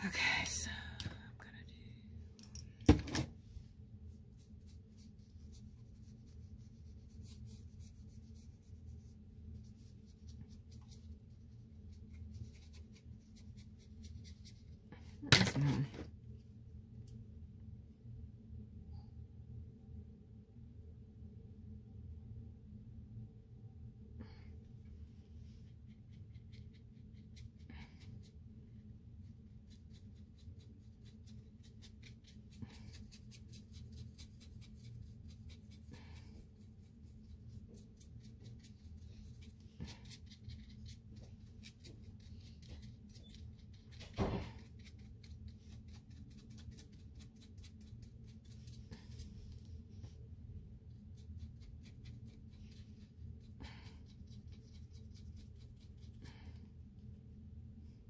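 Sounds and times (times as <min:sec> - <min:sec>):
low room hum: 0:00.0 - 0:58.0.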